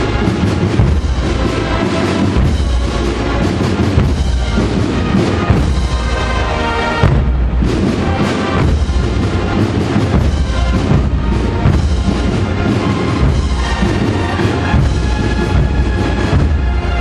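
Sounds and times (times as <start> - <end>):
heavy bass drum beats: 0.0 - 17.0
processional band playing a march: 0.0 - 17.0.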